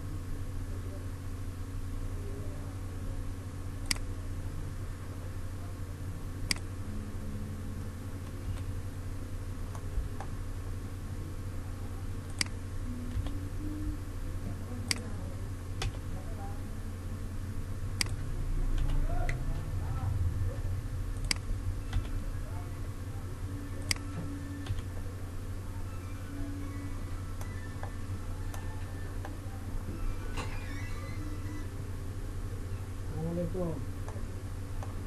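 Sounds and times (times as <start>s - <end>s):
steady low hum: 0.0s - 35.0s
computer mouse clicking: 6.5s - 6.7s, 12.3s - 13.4s, 18.8s - 19.0s, 21.2s - 22.2s, 23.8s - 24.9s.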